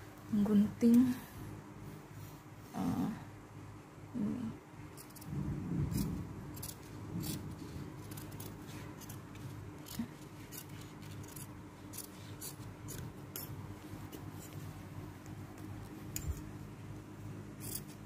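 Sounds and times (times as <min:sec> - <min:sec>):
low hum: 0:00.0 - 0:18.0
shears snipping fabric: 0:06.0 - 0:16.5.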